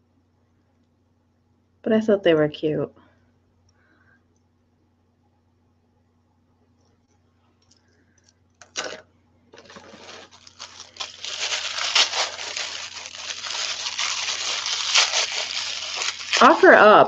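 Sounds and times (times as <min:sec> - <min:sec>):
tissue paper crinkling: 0:09.6 - 0:17.0.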